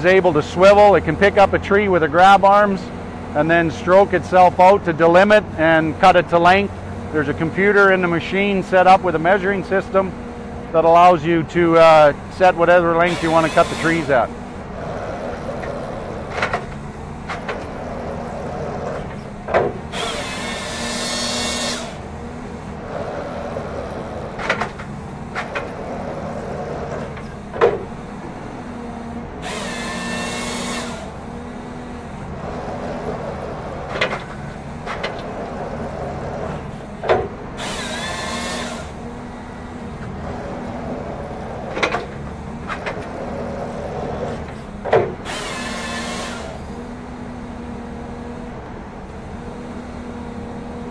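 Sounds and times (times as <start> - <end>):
forestry machine running: 0.0 - 50.9
high-pitched hydraulic whine: 10.8 - 31.7, 35.2 - 39.6, 40.6 - 47.0.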